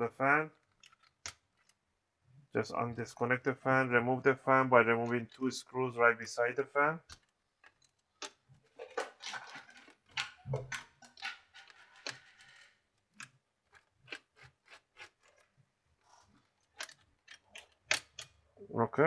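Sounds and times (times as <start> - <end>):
plastic parts handled: 7.1 - 18.4
screwdriver clicks and scrapes: 11.1 - 15.5.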